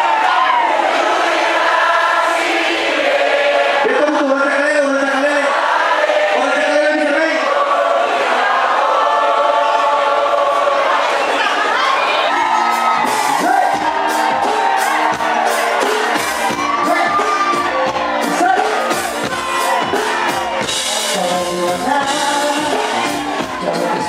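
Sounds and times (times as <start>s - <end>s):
crowd shouting and cheering: 0.0s - 24.0s
live pop band playing: 10.3s - 24.0s
person singing: 15.5s - 24.0s.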